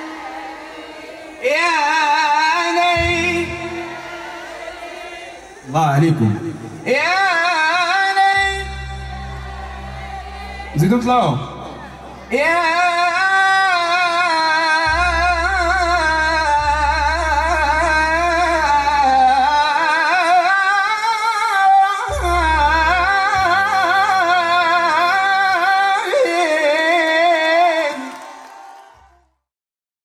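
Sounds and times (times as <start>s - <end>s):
keyboard accompaniment: 0.0s - 28.4s
man singing ornamented melody: 1.3s - 4.1s, 5.4s - 10.0s, 10.7s - 28.1s
deep bass notes: 8.4s - 19.8s, 22.1s - 25.4s.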